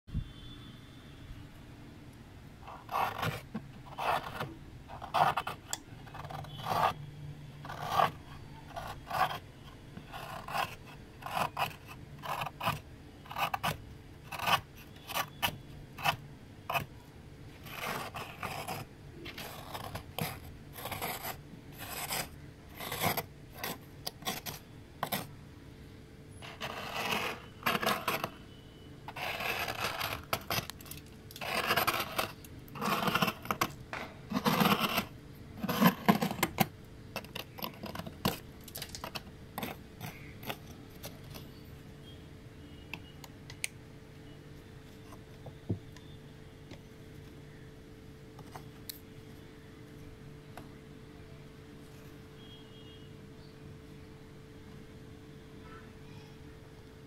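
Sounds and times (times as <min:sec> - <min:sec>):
spoon scraping frost in freezer: 0:02.7 - 0:07.0, 0:07.6 - 0:17.0, 0:17.6 - 0:25.4, 0:26.4 - 0:28.4, 0:29.1 - 0:41.6.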